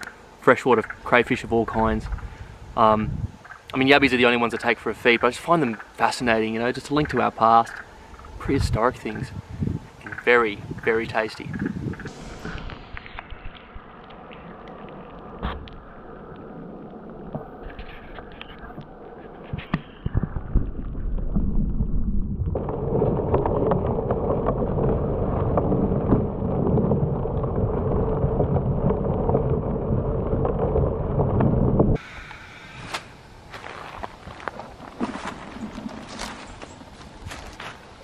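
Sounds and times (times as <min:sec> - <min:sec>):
muffled churning water: 0:09.4 - 0:38.0.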